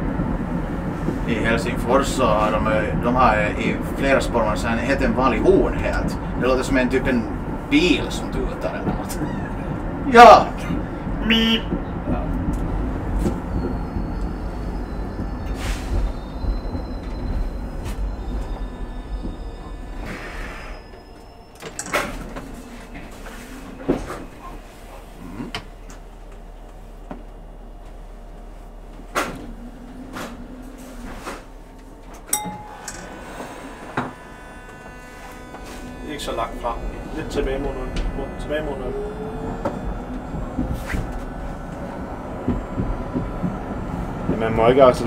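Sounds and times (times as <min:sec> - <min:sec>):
tram running rumble: 0:00.0 - 0:45.0
faint high whine: 0:32.1 - 0:45.0
brief tone: 0:32.3 - 0:42.2.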